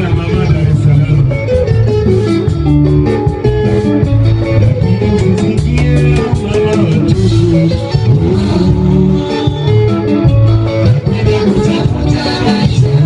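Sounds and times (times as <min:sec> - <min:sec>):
bass guitar: 0:00.0 - 0:13.0
drums: 0:00.0 - 0:13.0
electric guitar: 0:00.0 - 0:13.0.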